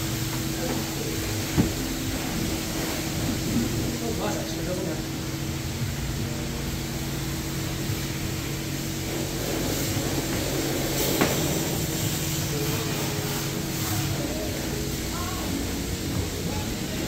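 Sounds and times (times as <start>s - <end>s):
wash bay equipment humming: 0.0s - 17.0s
foaming brush scrubbing car: 7.8s - 17.0s.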